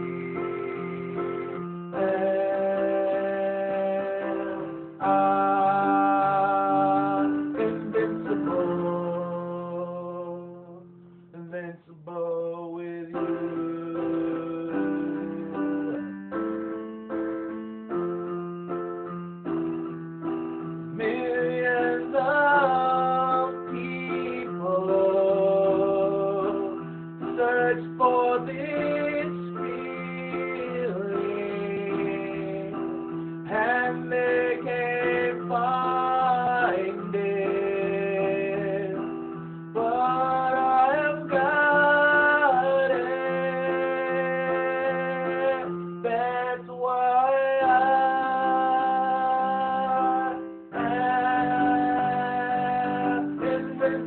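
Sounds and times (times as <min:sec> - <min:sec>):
person singing a melody: 0:00.0 - 0:16.7, 0:20.9 - 0:54.0
piano with held low notes: 0:00.0 - 0:54.0.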